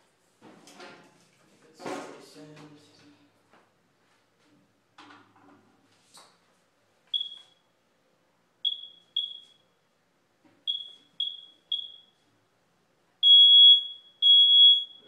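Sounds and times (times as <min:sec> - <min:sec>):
high-pitched electronic beeps: 0:13.2 - 0:15.0.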